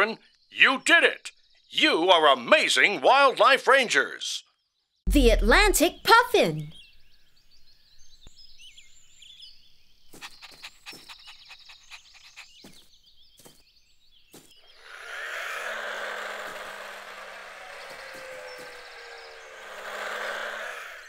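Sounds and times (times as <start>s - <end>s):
faint bird chirps: 6.4s - 15.7s
toy car motor whirring: 14.8s - 21.0s.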